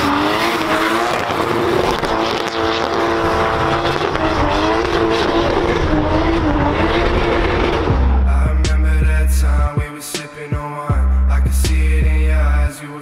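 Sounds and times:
car engine at high revs: 0:00.0 - 0:08.3.

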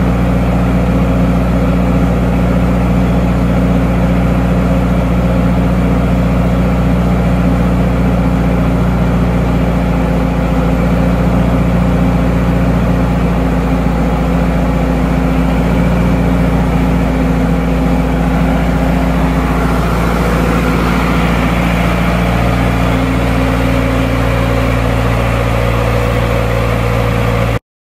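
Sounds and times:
diesel generator running: 0:00.0 - 0:27.6.

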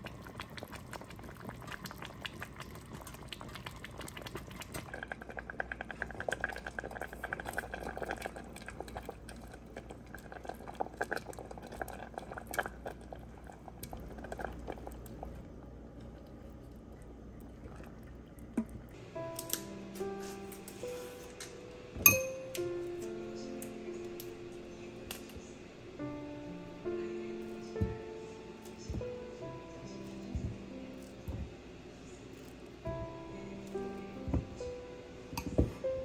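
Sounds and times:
soup bubbling at the boil: 0:00.0 - 0:19.0.

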